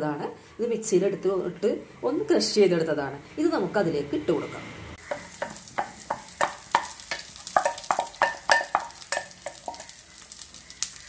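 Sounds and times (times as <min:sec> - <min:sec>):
masala sizzling in oil: 0:05.0 - 0:11.0
spoon clinking against bowl: 0:06.1 - 0:09.9.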